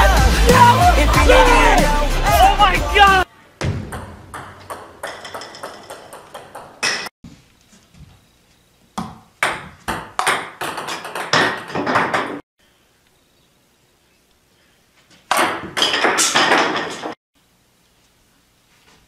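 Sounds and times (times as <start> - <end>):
table tennis balls clicking: 3.9 - 7.1.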